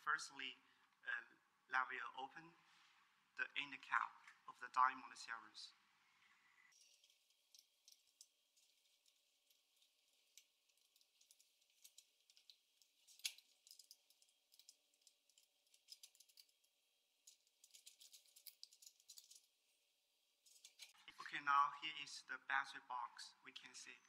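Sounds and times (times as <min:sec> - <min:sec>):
hands clicking and rattling housing: 0:06.7 - 0:19.6, 0:20.4 - 0:21.0.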